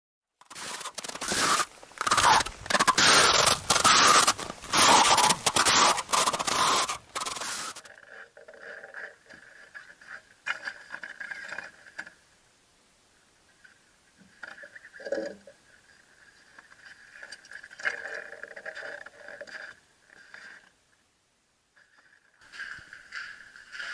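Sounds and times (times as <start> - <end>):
footsteps crunching on snow: 0.6 - 7.8.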